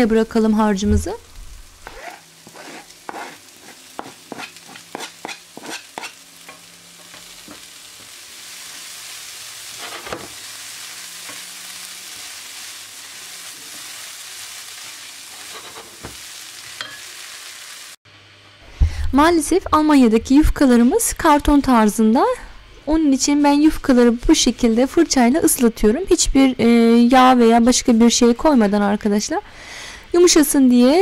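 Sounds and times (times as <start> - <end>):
food sizzling: 0.0 - 18.0
spatula scraping a frying pan: 1.9 - 6.2, 9.7 - 10.3, 15.2 - 16.1.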